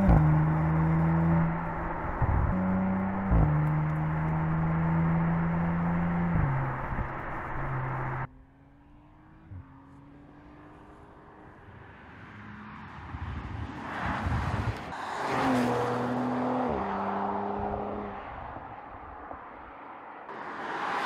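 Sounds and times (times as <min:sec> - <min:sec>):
car engine accelerating past: 0:00.0 - 0:11.5.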